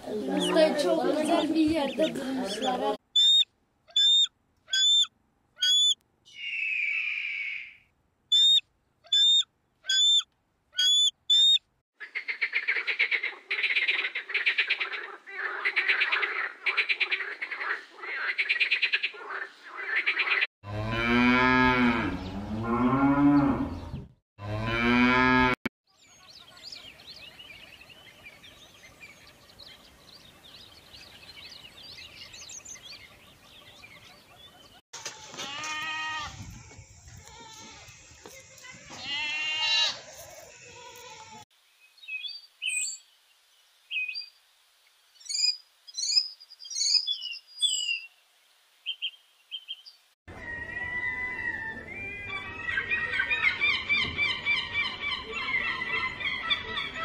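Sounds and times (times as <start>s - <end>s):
high-pitched bird calls: 1.9s - 17.2s, 45.2s - 48.1s.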